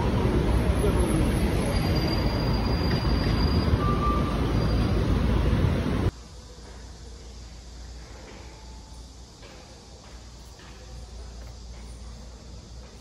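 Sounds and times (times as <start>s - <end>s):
traffic rumble: 0.0s - 8.3s.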